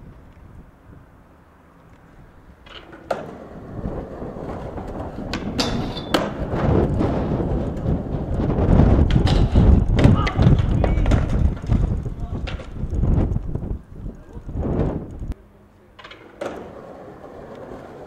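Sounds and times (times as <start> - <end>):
skateboard wheels rolling: 0.0 - 18.0
skateboard knocking on concrete: 2.7 - 12.8.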